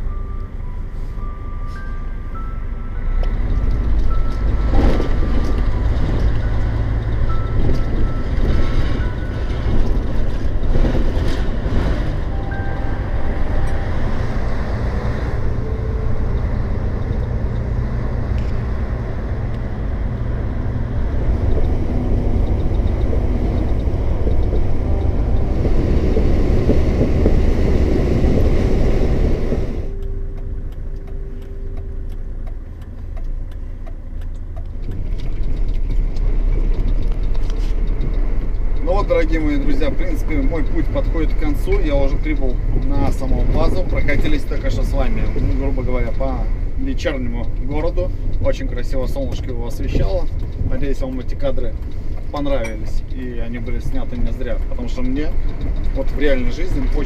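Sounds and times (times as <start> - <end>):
truck engine and road noise: 0.0 - 57.0
steady hum: 12.1 - 34.5.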